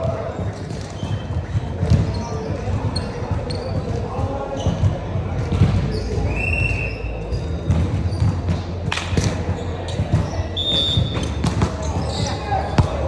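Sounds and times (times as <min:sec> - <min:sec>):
sneaker squeaks on hard court: 0:00.3 - 0:06.3, 0:07.3 - 0:13.0.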